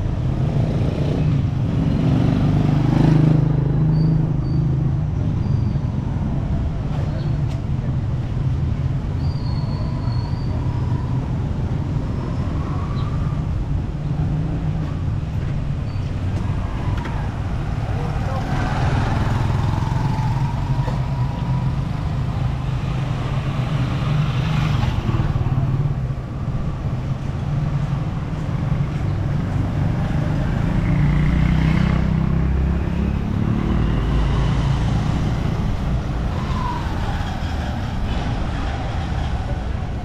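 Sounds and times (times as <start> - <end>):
motorcycle engines passing: 0.0 - 9.0, 9.8 - 40.0.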